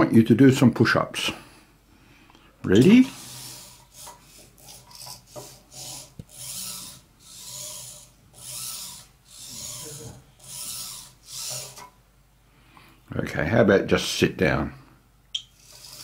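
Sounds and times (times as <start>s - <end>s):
robot servos whirring: 3.1s - 11.9s, 15.6s - 16.0s.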